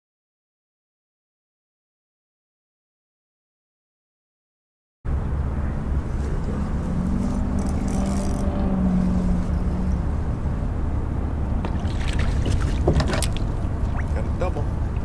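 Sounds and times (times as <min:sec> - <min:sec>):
boat motor rumbling: 0:05.1 - 0:15.0
higher hum: 0:05.1 - 0:15.0.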